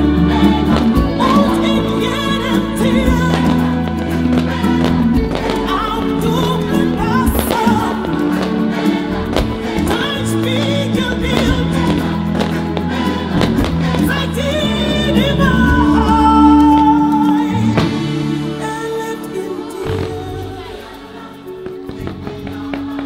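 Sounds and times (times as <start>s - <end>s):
music with singing voice: 0.0s - 23.0s.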